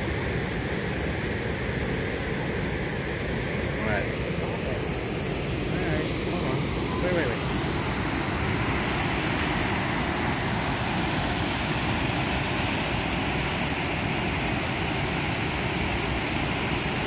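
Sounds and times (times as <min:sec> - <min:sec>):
waterfall rushing: 0:02.4 - 0:17.0.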